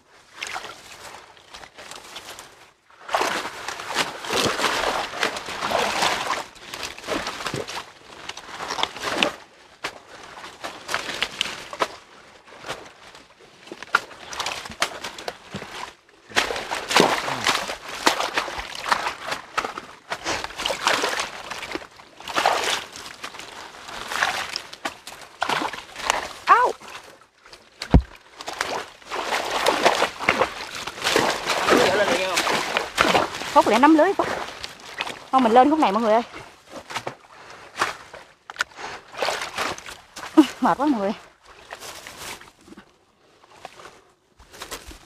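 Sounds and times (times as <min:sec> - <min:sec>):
water sloshing: 0:00.4 - 0:45.0
leaves rustling and crushing: 0:27.7 - 0:35.4, 0:41.6 - 0:42.7, 0:44.4 - 0:45.0.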